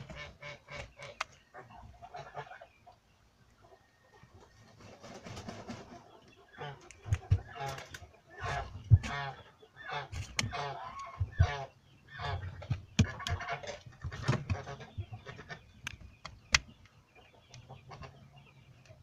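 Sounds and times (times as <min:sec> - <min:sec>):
chickens clucking: 0:00.0 - 0:19.0
sharp clicks: 0:15.8 - 0:17.6.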